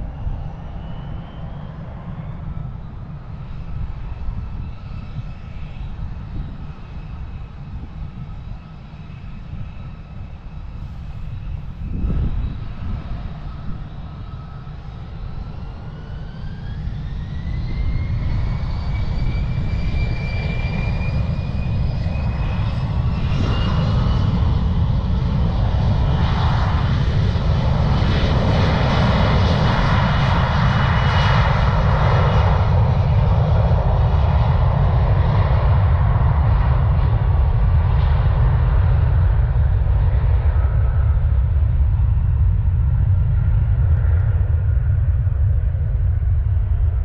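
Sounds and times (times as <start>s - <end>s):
low rumble: 10.8s - 13.9s, 32.6s - 47.0s.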